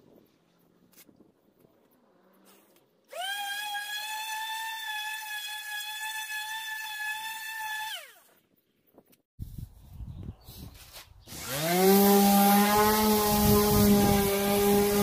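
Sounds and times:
orbital sander motor whine: 11.3 - 15.0.

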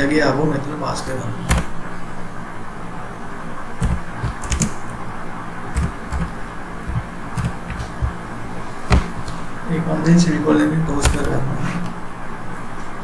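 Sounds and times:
steady low hum: 0.4 - 12.7
keyboard key clicks: 1.5 - 1.8, 3.8 - 5.0, 5.8 - 6.3, 6.9 - 8.2, 11.0 - 11.3.

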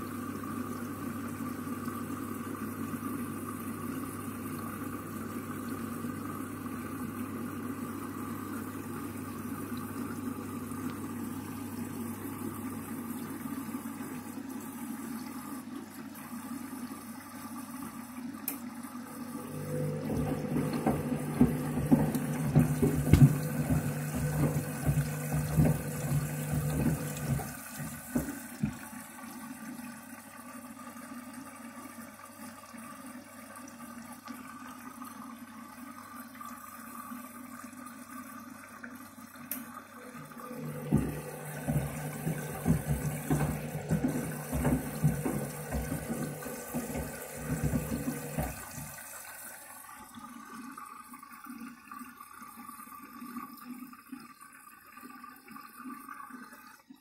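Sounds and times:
washing machine water sloshing: 0.0 - 57.0
low machine hum: 18.9 - 29.4, 40.0 - 49.0
shoes knocking in drum: 20.1 - 28.8, 40.9 - 49.0.

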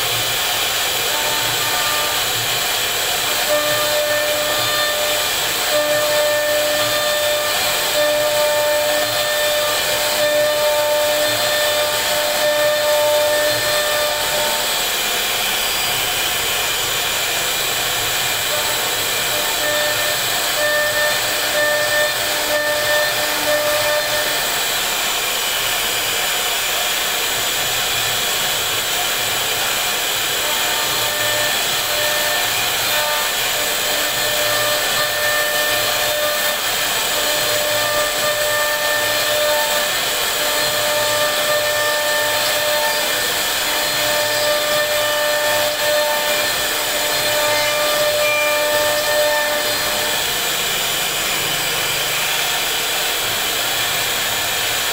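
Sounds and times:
bit whining while cutting wood: 0.0 - 54.9
router spindle motor hissing: 0.0 - 54.9.

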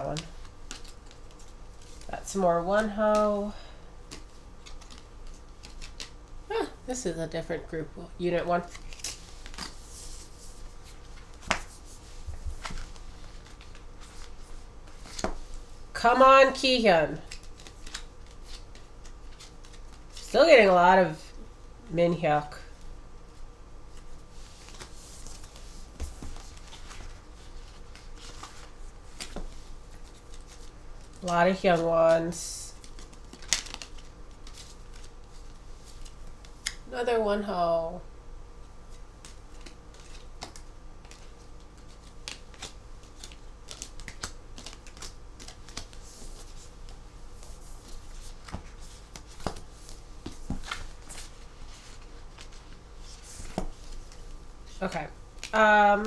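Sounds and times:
cards clicking and paper rustling: 0.1 - 2.1, 2.8 - 6.3, 12.4 - 15.5, 17.2 - 20.3, 23.9 - 36.8, 39.2 - 54.4.

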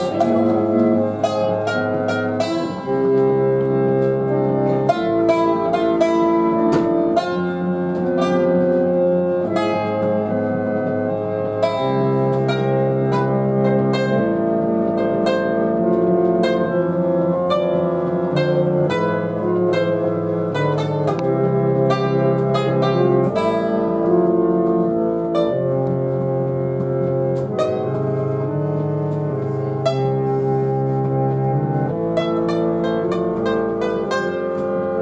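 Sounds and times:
plucked synthesizer notes: 0.0 - 35.0
synthesizer chords: 0.0 - 35.0.

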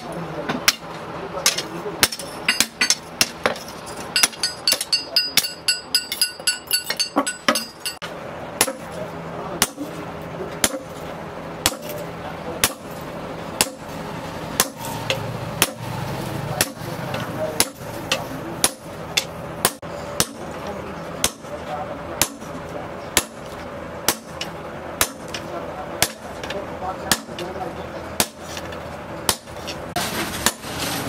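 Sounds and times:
hammer striking steel on anvil: 0.0 - 9.0, 9.6 - 10.0, 10.6 - 11.0, 11.6 - 12.0, 12.6 - 13.0, 13.6 - 13.9, 14.6 - 15.9, 16.6 - 20.6, 21.2 - 21.6, 22.2 - 27.5.

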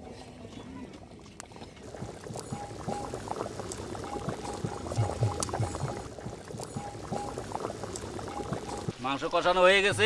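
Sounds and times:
thick curry bubbling and popping: 1.3 - 8.9.

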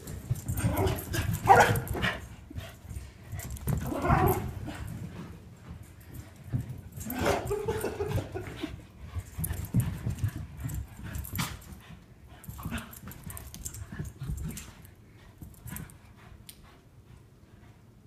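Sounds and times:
paws scuffling on carpet: 0.0 - 16.4.

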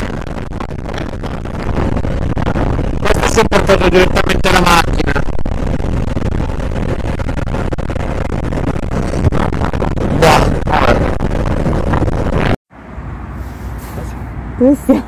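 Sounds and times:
wind rush on microphone: 0.0 - 12.6.

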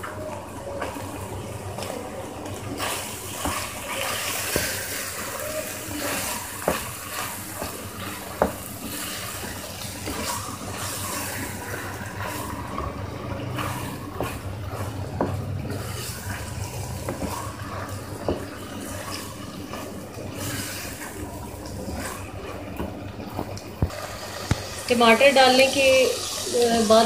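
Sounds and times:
meat sizzling in a pan: 2.6 - 22.6, 23.3 - 27.0.

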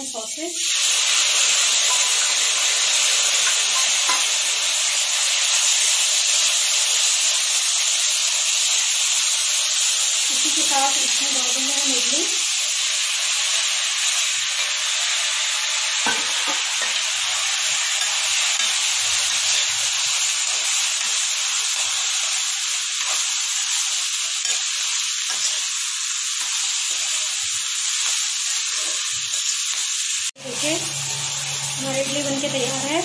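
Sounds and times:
food frying sizzle: 0.0 - 33.0
spoon scraping and knocking pan: 1.8 - 2.7, 3.3 - 4.4, 16.0 - 17.0, 23.0 - 29.8.

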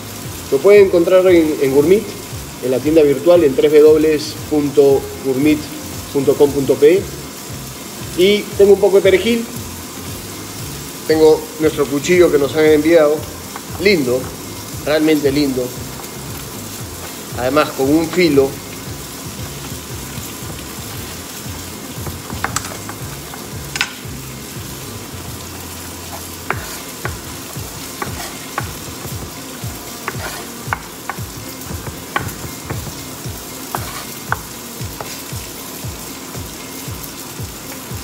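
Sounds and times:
steak sizzling: 0.0 - 38.0
knife chopping on wooden board: 22.0 - 23.9, 26.1 - 27.3, 27.9 - 29.3, 30.0 - 33.0, 33.7 - 35.2.

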